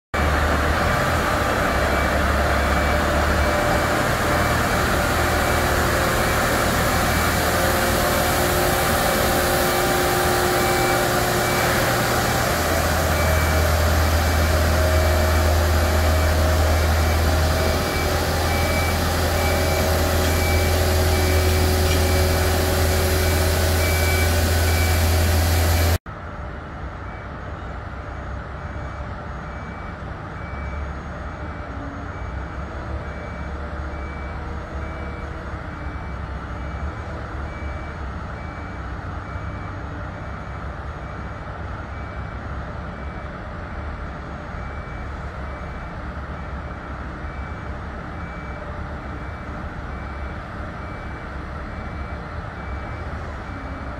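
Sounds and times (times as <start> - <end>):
diesel engine running: 0.2 - 53.9.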